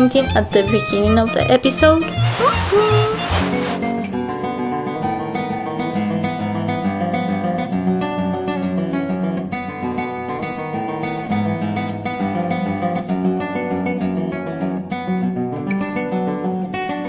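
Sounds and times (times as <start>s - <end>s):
acoustic guitar music: 0.0s - 4.1s.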